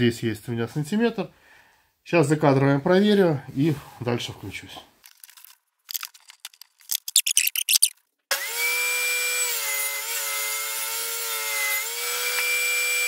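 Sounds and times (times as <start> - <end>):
handling clicks and knocks: 5.0 - 7.9.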